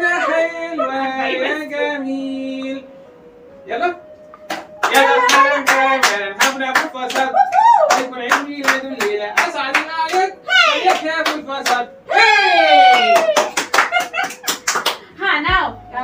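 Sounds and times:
group singing a birthday song: 0:00.0 - 0:02.9, 0:04.8 - 0:07.4
people clapping in rhythm: 0:04.4 - 0:11.9, 0:12.8 - 0:15.1.

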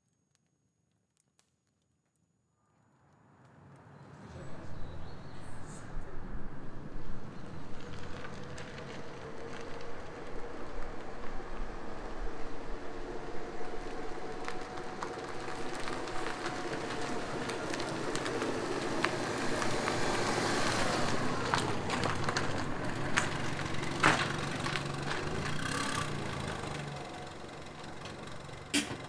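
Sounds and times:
car tyre noise: 0:06.6 - 0:29.0
low car engine note: 0:11.3 - 0:29.0.

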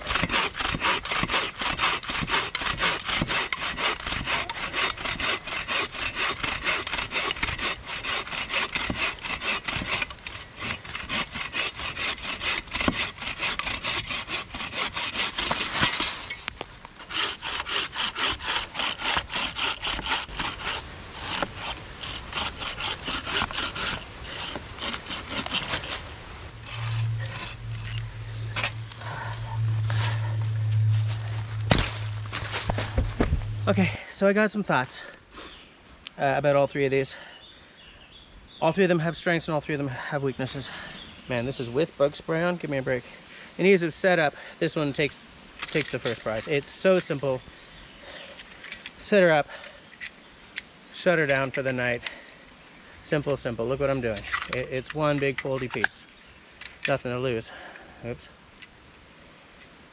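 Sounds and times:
saw cutting through log: 0:00.0 - 0:16.4, 0:17.0 - 0:33.1
low steady hum: 0:20.2 - 0:34.8.

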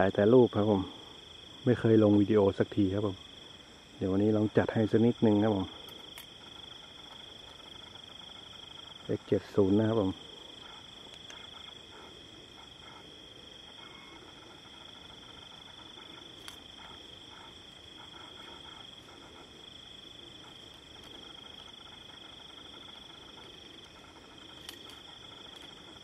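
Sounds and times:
crickets trilling: 0:00.0 - 0:26.0
faint clicks: 0:05.8 - 0:08.6, 0:10.6 - 0:12.0, 0:14.2 - 0:19.4.

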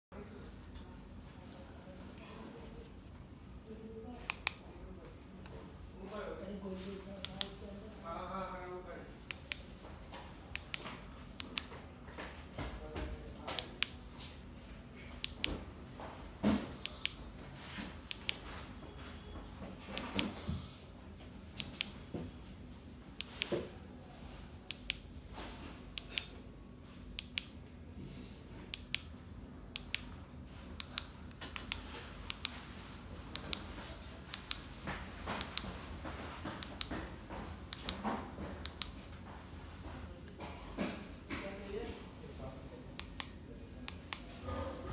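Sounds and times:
sharp switch clicks: 0:04.3 - 0:04.7, 0:07.2 - 0:07.5, 0:11.4 - 0:11.7, 0:27.2 - 0:27.5, 0:28.7 - 0:29.1, 0:29.7 - 0:30.1, 0:37.7 - 0:38.0, 0:38.6 - 0:39.0.

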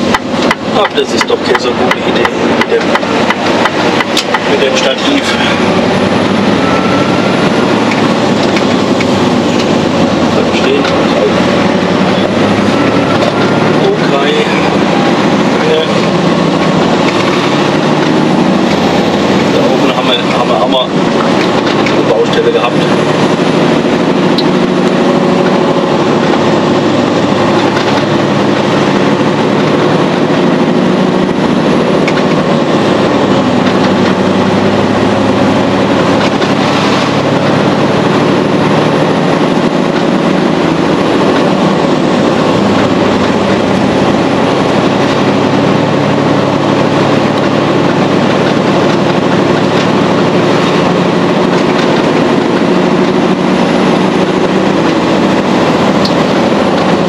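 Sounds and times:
road noise: 0:00.0 - 0:57.0
truck diesel engine running: 0:00.0 - 0:57.0.

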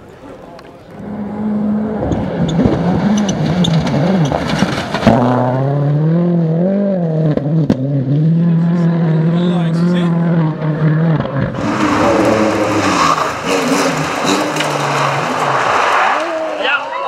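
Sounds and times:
rally car engine revving: 0:00.9 - 0:17.0
dirt and stones rushing: 0:11.6 - 0:17.0.

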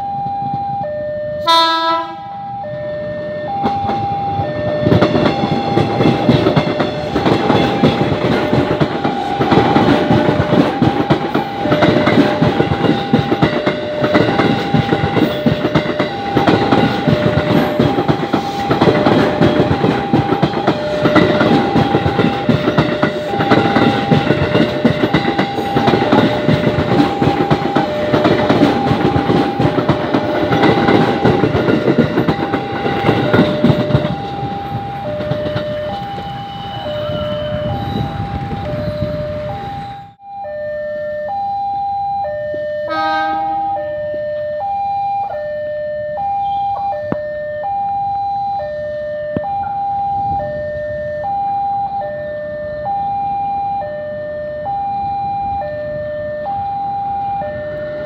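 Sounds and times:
two-tone level-crossing alarm: 0:00.0 - 0:58.0
train wheels clattering over rails: 0:03.6 - 0:40.2.

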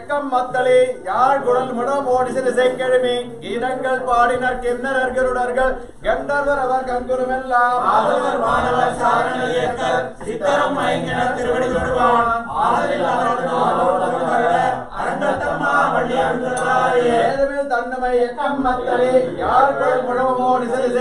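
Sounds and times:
group chanting: 0:07.7 - 0:17.5, 0:18.5 - 0:21.0.

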